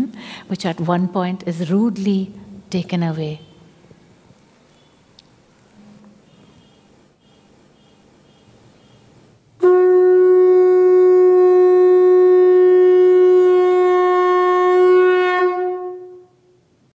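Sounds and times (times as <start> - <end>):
conch shell blown: 9.6 - 16.6.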